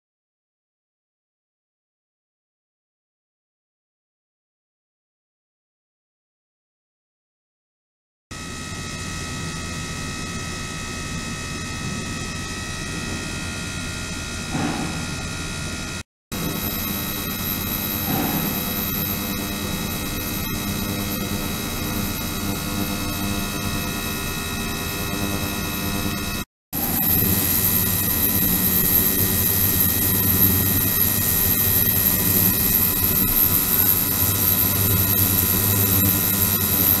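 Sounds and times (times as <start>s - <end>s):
strong high whine: 8.4s - 37.0s
ultrasonic transducer hum in water: 8.4s - 37.0s.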